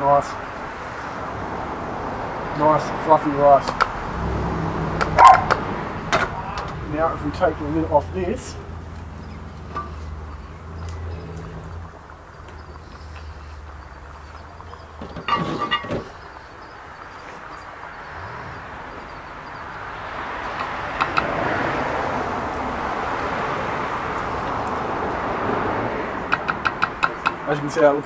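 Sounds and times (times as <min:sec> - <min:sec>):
iron lid clanking on metal: 0:15.0 - 0:16.2.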